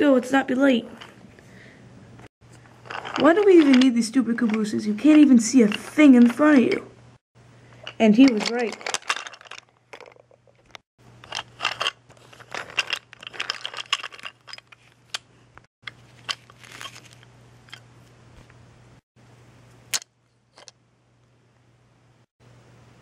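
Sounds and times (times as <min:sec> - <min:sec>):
faint steady hum: 0:00.0 - 0:23.0
wooden toy train clattering: 0:02.8 - 0:06.9, 0:07.8 - 0:15.2.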